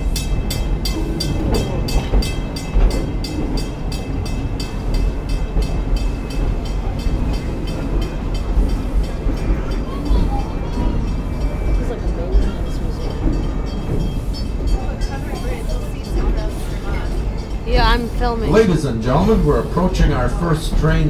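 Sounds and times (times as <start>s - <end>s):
steam locomotive chuffing: 0.0s - 21.0s
train cars rumbling: 0.0s - 21.0s.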